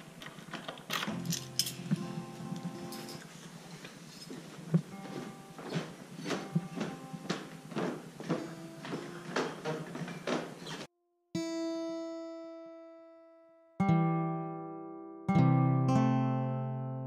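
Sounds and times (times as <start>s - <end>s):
footsteps down carpeted stairs: 0.0s - 10.9s.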